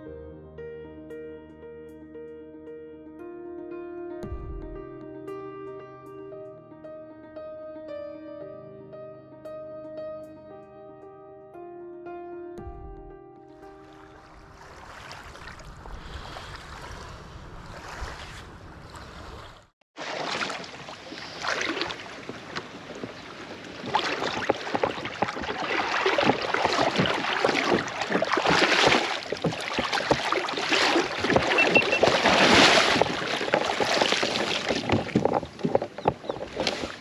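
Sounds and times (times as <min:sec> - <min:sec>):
water sloshing and splashing: 0:13.6 - 0:37.0.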